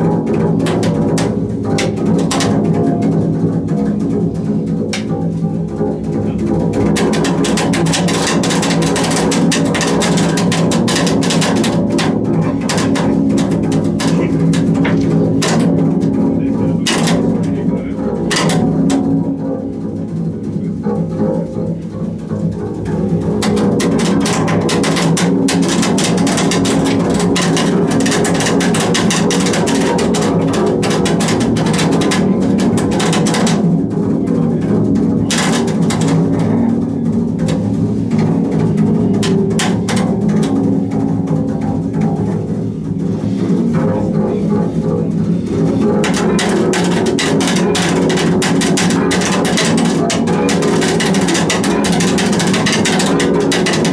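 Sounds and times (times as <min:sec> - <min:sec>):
double bass bowed: 0:00.0 - 0:53.9.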